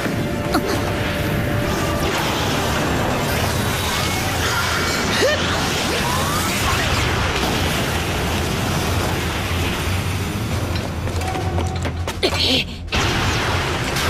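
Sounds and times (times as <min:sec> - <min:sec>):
dramatic background music: 0:00.0 - 0:14.0
battle crashes and booms: 0:12.9 - 0:14.0.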